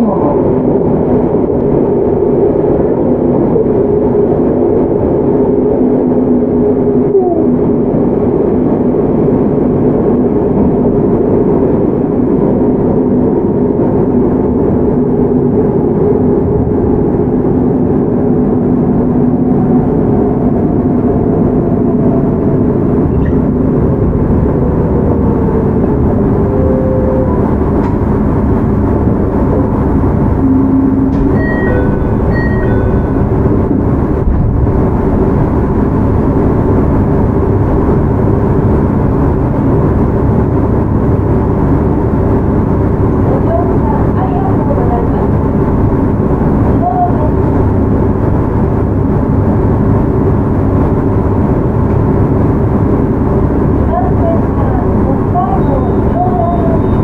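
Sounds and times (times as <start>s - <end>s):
train wheel and rail rumble: 0.0s - 57.0s
short high dings: 31.2s - 33.2s.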